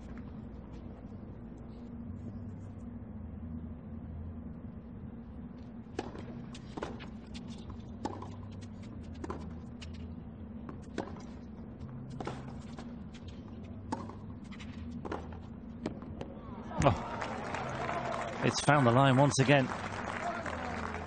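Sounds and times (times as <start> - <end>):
low background hum: 0.0 - 21.0
tennis ball hits: 13.9 - 17.1.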